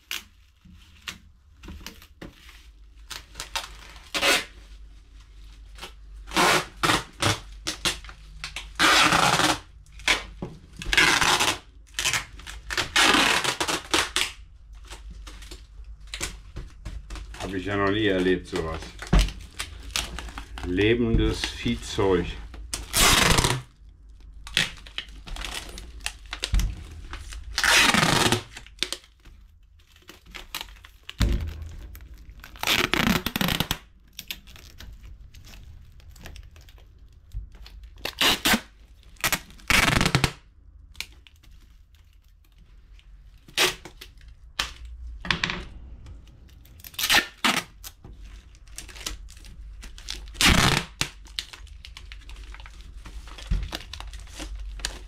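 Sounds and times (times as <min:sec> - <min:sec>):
plastic bag crinkling: 0:00.0 - 0:45.1, 0:46.5 - 0:55.0
handling noise: 0:31.0 - 0:37.6.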